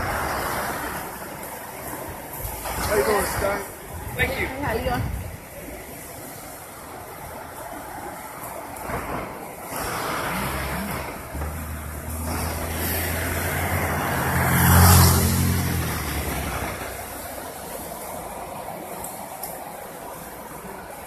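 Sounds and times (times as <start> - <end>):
hiss: 8.8 - 13.5
vehicle engine passing by: 9.7 - 17.8.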